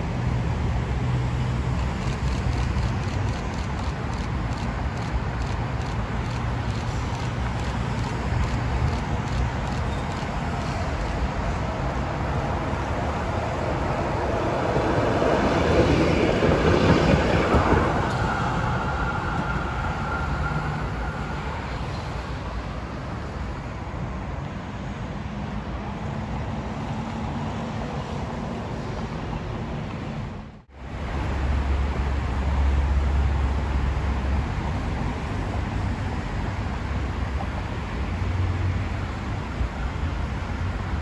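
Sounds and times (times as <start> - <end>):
electric tram on rails: 0.0 - 41.0.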